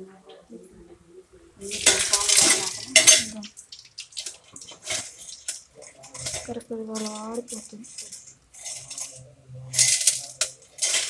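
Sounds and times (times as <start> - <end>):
metal skimmer scraping steel bowl: 1.6 - 3.4.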